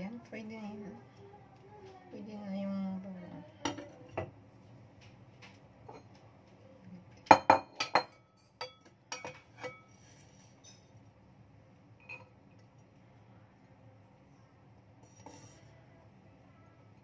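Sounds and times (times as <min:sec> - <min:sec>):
kitchen utensils clinking: 0:07.3 - 0:11.0, 0:12.0 - 0:12.3.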